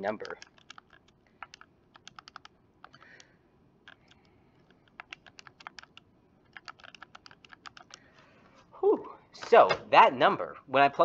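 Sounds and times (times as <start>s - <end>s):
calculator keys tapping: 0.0s - 8.0s.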